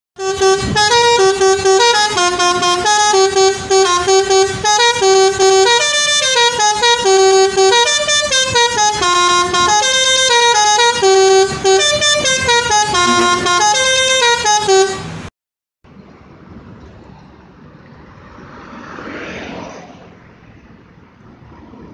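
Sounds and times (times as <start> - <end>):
musical air horn playing tune: 0.2 - 15.3
faint road noise: 0.2 - 21.9.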